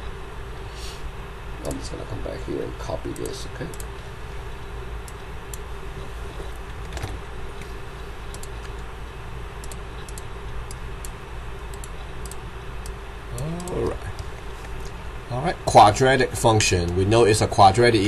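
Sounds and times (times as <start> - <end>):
low electrical hum: 0.0 - 18.0
computer mouse clicks: 3.1 - 4.0, 8.3 - 8.9, 9.6 - 15.0.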